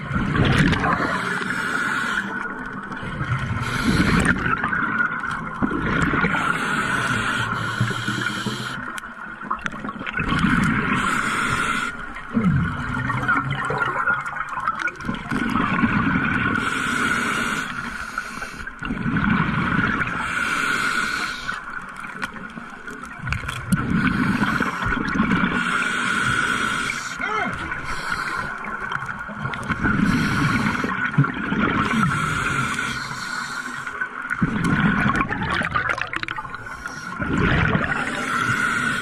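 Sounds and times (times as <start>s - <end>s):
regulator hiss on inhale: 1.0s - 2.5s, 3.6s - 4.5s, 6.4s - 9.0s, 10.9s - 12.2s, 16.6s - 18.8s, 20.2s - 21.7s, 23.9s - 27.2s, 27.8s - 28.7s, 29.8s - 31.1s, 31.8s - 34.0s, 36.5s - 37.2s, 38.0s - 39.0s
bubbling on exhale: 34.3s - 39.0s.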